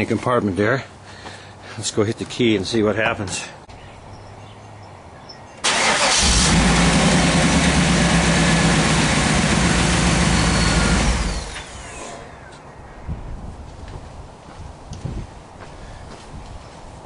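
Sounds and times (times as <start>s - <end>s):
car engine running: 6.1s - 12.0s.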